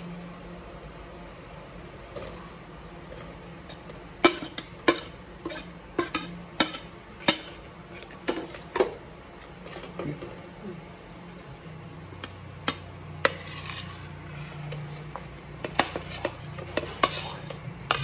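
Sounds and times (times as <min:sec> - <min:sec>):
metal spoon clinking on plate and pot: 0:04.2 - 0:07.7, 0:14.7 - 0:18.0.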